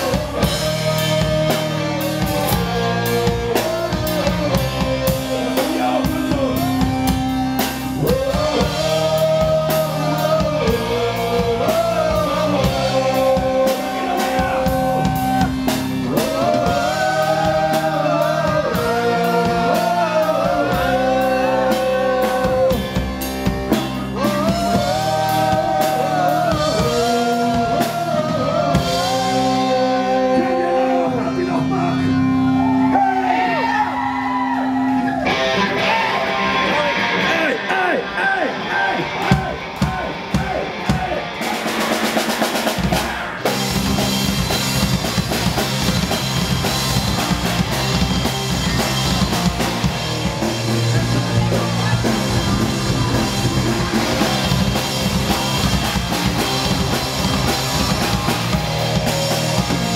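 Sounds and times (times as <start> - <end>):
man singing: 0.0 - 23.1, 24.0 - 32.2
drum kit: 0.0 - 36.4, 39.0 - 59.9
bass guitar: 0.0 - 59.9
electric guitars: 0.0 - 59.9.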